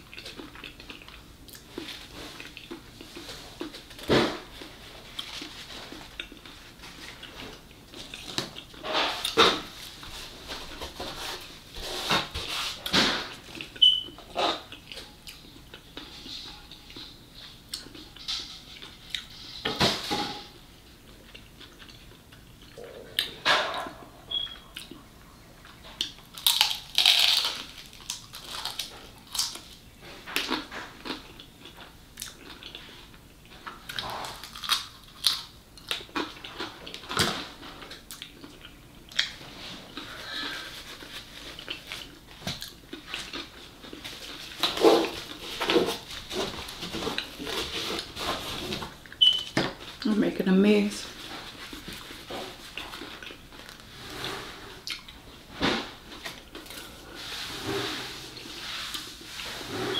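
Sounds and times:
chewing food: 0.0 - 10.1, 21.0 - 23.4, 24.3 - 48.1, 51.2 - 53.9, 54.8 - 55.2.

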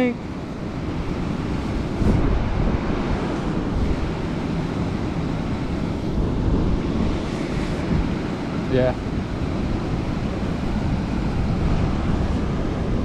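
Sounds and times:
water rushing over spillway: 6.8 - 13.0.

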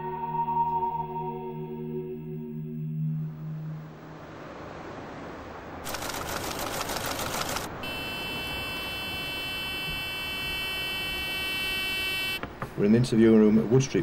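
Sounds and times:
electronic drone of high tones: 7.4 - 12.4.

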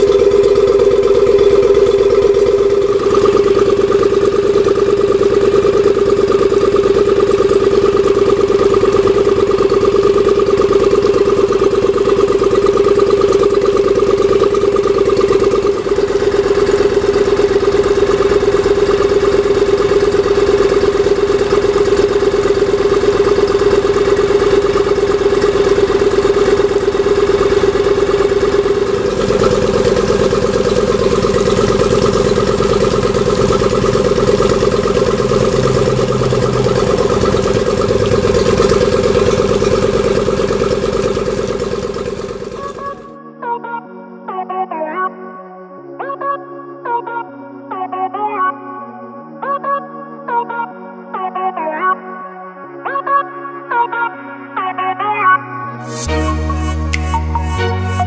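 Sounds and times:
outboard engine idling: 0.0 - 43.2.

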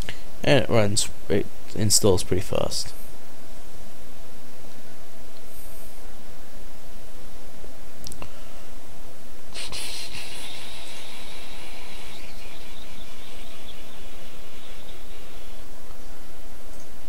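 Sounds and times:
microphone hiss: 0.0 - 17.0
bright high hiss: 9.5 - 16.1.

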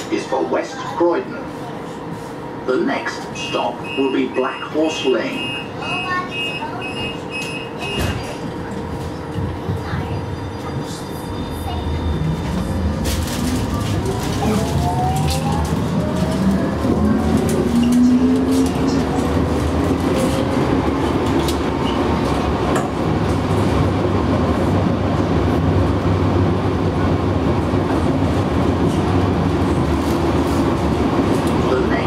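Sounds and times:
wheels rumbling on rail: 0.0 - 32.0
tram motor whine: 2.6 - 32.0
rail clicks: 11.9 - 23.9.

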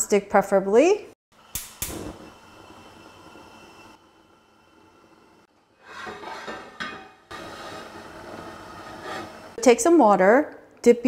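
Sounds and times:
frying pan clattering on grate: 6.0 - 7.3.

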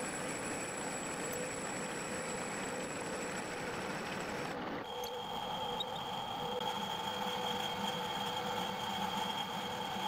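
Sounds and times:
metal lathe running with whine: 0.0 - 10.0.

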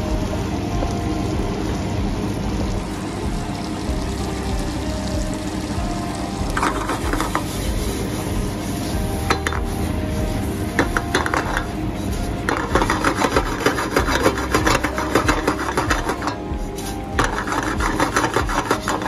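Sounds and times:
metal utensil scraping a pan: 10.8 - 11.7, 12.4 - 19.0.

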